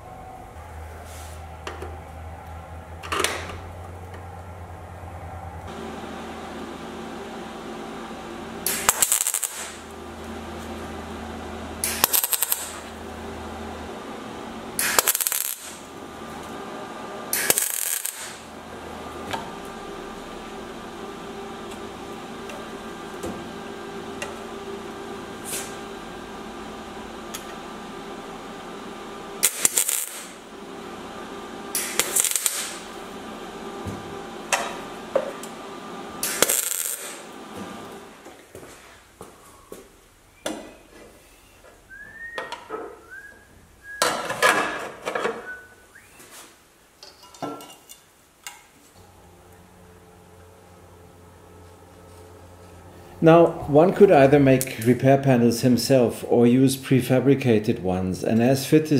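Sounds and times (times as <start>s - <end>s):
welder humming: 0.0s - 39.8s, 48.8s - 56.6s
welding arc crackling: 5.7s - 38.2s.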